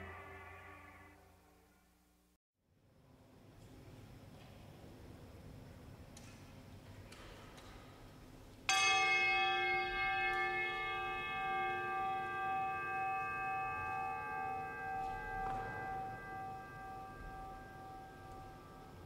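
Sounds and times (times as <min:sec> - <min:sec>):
bell ringing: 0:08.7 - 0:19.0.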